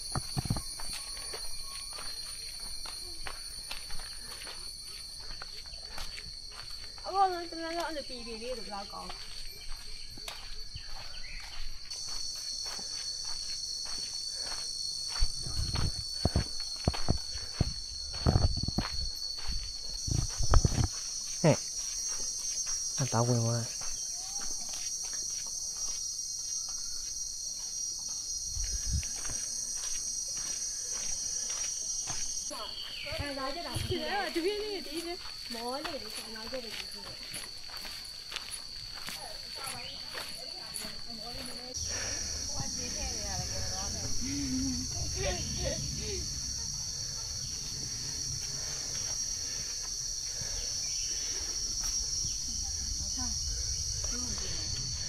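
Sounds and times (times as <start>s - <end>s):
insects chirring: 0.0s - 55.0s
low rumble: 41.8s - 49.8s.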